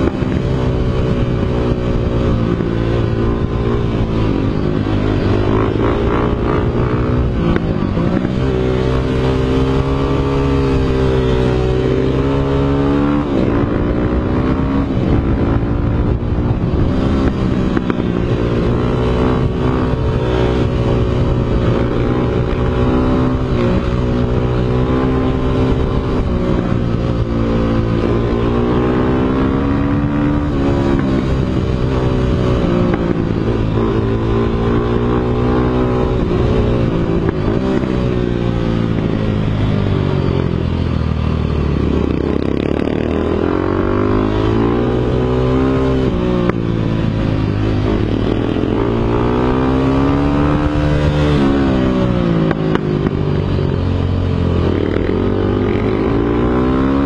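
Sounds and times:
dirt bike engine revving: 0.0s - 39.2s, 41.7s - 53.1s, 54.2s - 57.0s.

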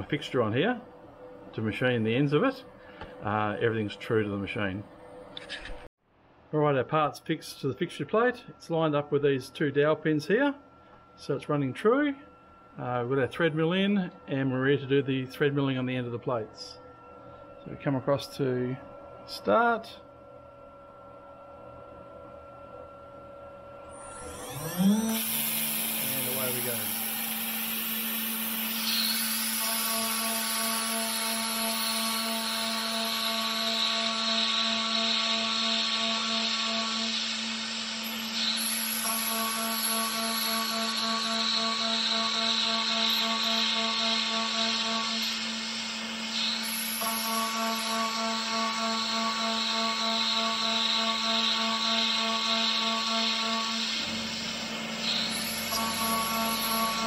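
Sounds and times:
router spindle humming: 22.6s - 57.0s
higher milling tones: 23.4s - 57.0s.

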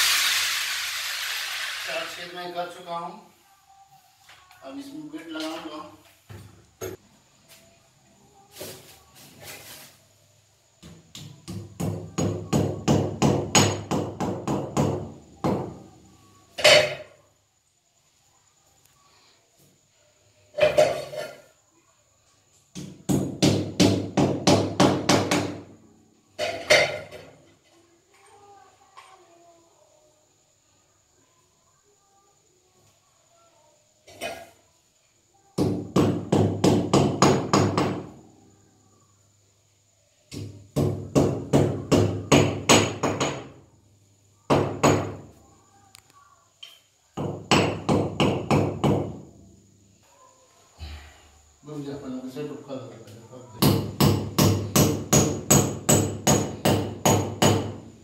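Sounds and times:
hammer striking masonry wall: 10.8s - 15.8s, 22.7s - 25.7s, 35.6s - 38.2s, 40.3s - 43.6s, 44.5s - 45.2s, 47.2s - 49.2s, 53.6s - 57.8s
hammer striking masonry: 22.7s - 25.6s, 47.2s - 49.1s, 53.6s - 57.8s.

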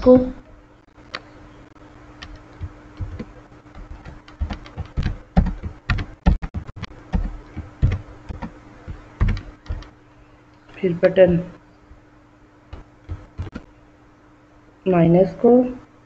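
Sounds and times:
faint steady hum: 0.0s - 16.0s
keyboard keystrokes clicking: 2.2s - 9.9s.

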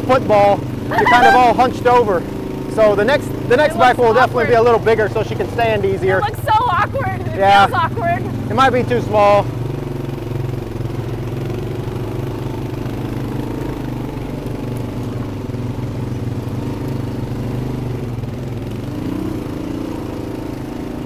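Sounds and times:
atv engine running: 0.0s - 21.0s
dirt bike engine running: 0.0s - 21.0s.

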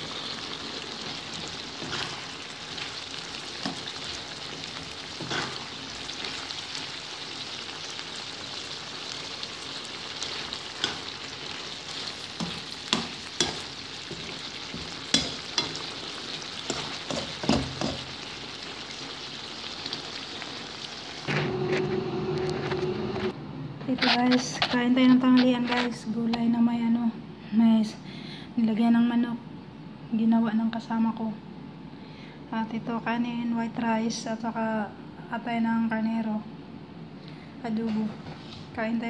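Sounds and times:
liver sizzling in a pan: 0.0s - 21.3s
spatula scraping a pan: 1.0s - 7.0s, 10.2s - 18.2s.

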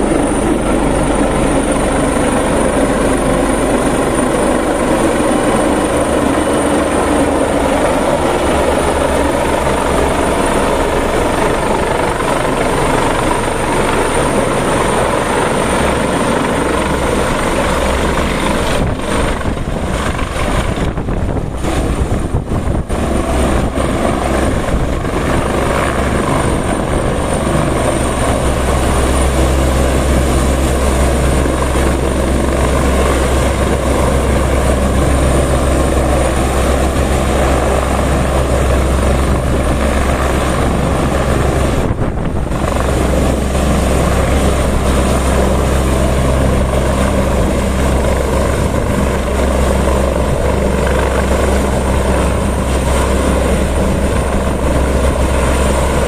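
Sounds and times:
engine and rotor-wash noise: 0.0s - 56.0s
helicopter rotor beat: 0.0s - 56.0s
high turbine whine: 0.0s - 56.0s.

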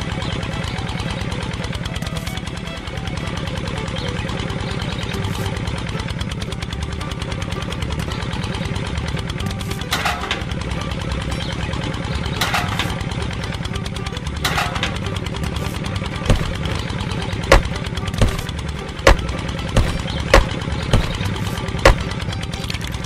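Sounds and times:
small engine idling: 0.0s - 23.0s
plums knocking into plastic funnel: 16.3s - 16.7s, 17.5s - 22.9s.

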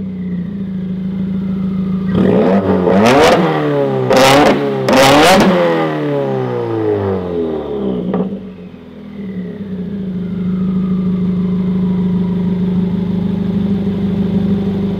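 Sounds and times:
car engine revving down and idling: 0.0s - 14.9s.

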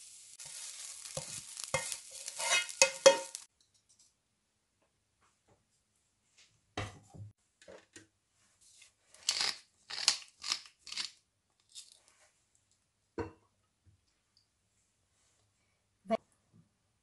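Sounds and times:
pepper mill grinding: 0.4s - 3.4s, 9.2s - 11.9s.

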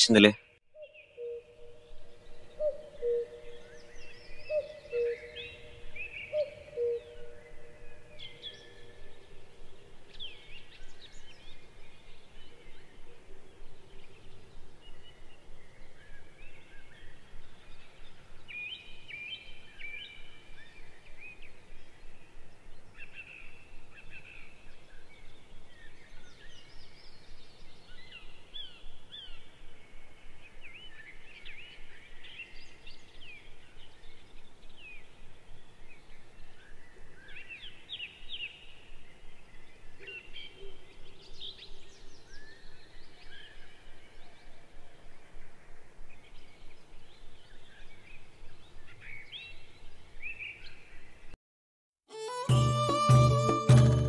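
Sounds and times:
open-air ambience hiss: 0.0s - 51.4s, 52.1s - 54.0s
birds chirping and calling: 2.2s - 9.3s.

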